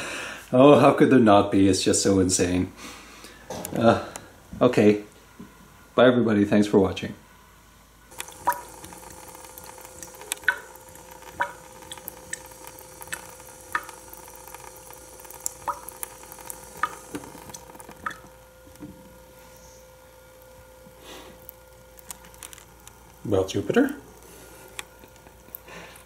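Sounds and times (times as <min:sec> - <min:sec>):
sharp water plinks: 0:08.1 - 0:18.4
water running into steel sink: 0:08.1 - 0:19.2.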